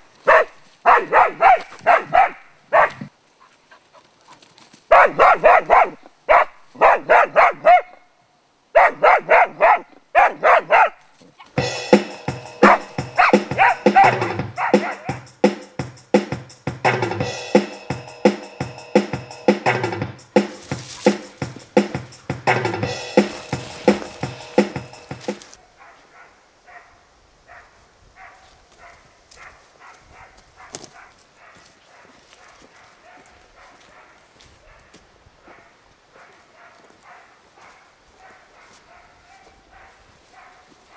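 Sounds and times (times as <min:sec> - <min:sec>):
dog barking: 0:00.2 - 0:03.1, 0:04.9 - 0:08.1, 0:08.8 - 0:11.0, 0:12.6 - 0:15.2, 0:25.6 - 0:40.9
music: 0:11.6 - 0:25.6.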